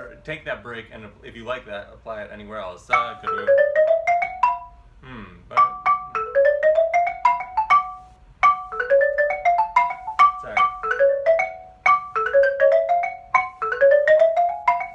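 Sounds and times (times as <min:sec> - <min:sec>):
xylophone notes: 0:02.9 - 0:04.9, 0:05.5 - 0:14.9.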